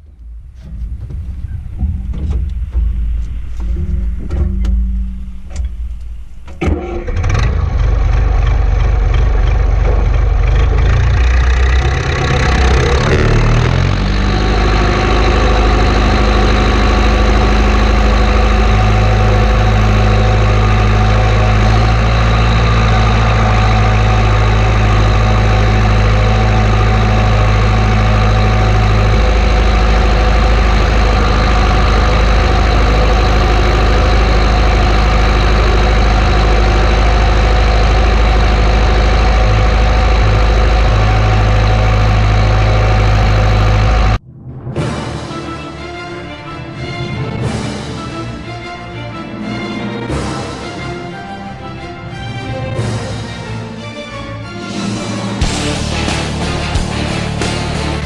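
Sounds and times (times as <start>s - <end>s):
diesel tractor engine idling: 0.0s - 44.2s.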